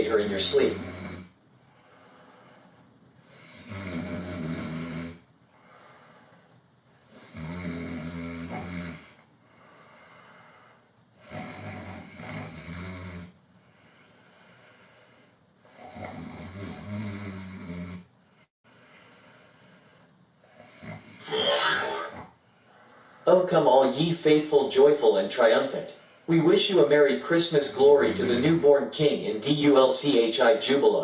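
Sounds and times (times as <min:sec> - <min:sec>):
person snoring: 0:00.0 - 0:01.3, 0:03.3 - 0:05.2, 0:07.1 - 0:09.2, 0:11.2 - 0:13.3, 0:15.7 - 0:18.1, 0:20.6 - 0:22.2, 0:27.6 - 0:28.9
quiet breathing: 0:00.1 - 0:07.6, 0:08.2 - 0:21.5, 0:22.3 - 0:23.7, 0:25.8 - 0:29.4.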